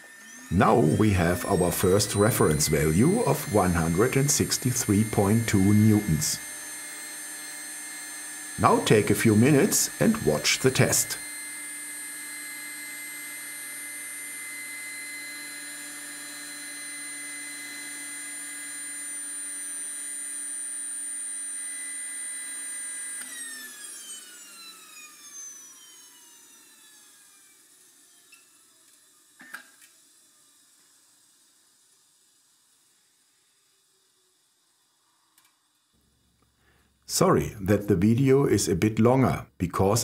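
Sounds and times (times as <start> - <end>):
model jet turbine whine: 0.0 - 40.0.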